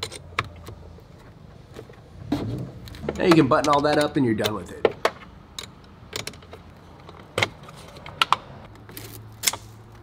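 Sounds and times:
metal tools clicking and tapping: 0:00.0 - 0:00.8, 0:03.0 - 0:08.9.

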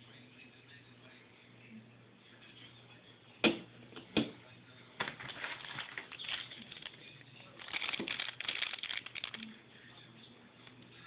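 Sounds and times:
plastic bag crinkling: 0:05.0 - 0:09.6.

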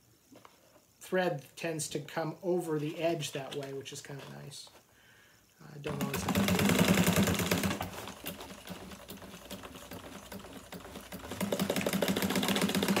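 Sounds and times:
sewing machine stitching: 0:05.9 - 0:13.0.

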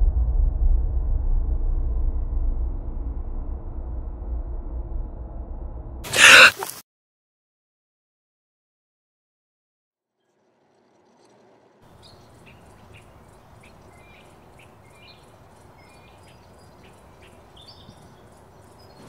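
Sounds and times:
outdoor background hiss: 0:10.2 - 0:19.0
birds chirping: 0:11.9 - 0:19.0.

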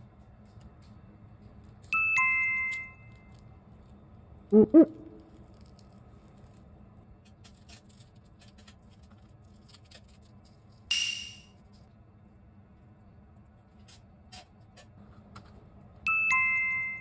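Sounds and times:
hands handling meat on cling wrap: 0:05.2 - 0:10.9.

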